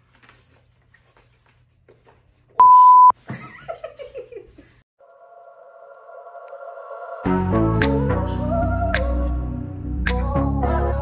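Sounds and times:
censor beep tone: 2.6 - 3.1
woman laughing: 3.2 - 4.8
music: 6.0 - 11.0.

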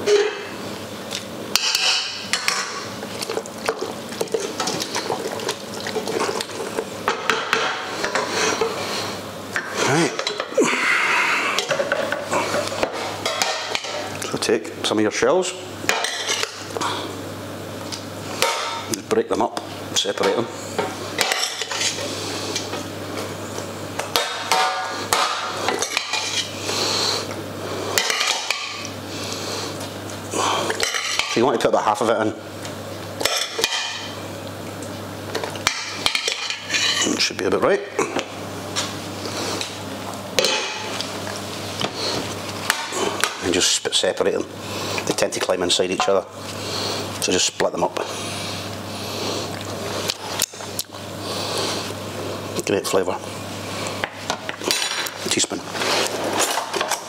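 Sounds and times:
spoon clinking against metal pans: 1.6 - 2.7.

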